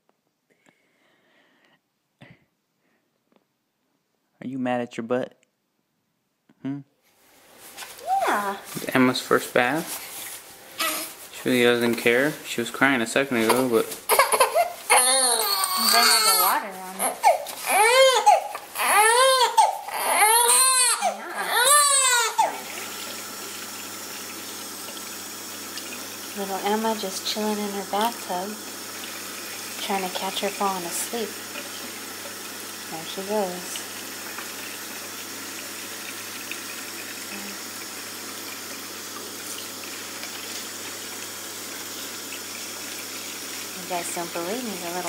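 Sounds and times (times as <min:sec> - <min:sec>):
water running into sink: 0:07.7 - 0:45.0
newborn baby crying: 0:10.8 - 0:11.1, 0:13.5 - 0:22.6
water dripping and trickling: 0:21.5 - 0:45.0.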